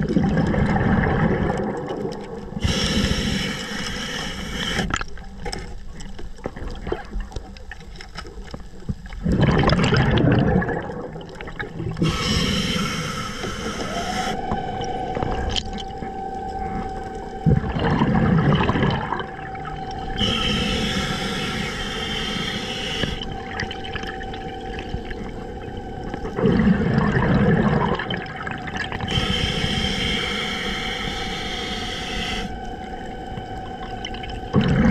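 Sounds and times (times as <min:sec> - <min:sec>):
faint steady tone: 0:00.7 - 0:09.2, 0:10.6 - 0:34.9
hissing regulator inhalations: 0:02.6 - 0:05.0, 0:12.0 - 0:26.3, 0:29.0 - 0:34.9
bursts of bubbles: 0:09.2 - 0:11.9.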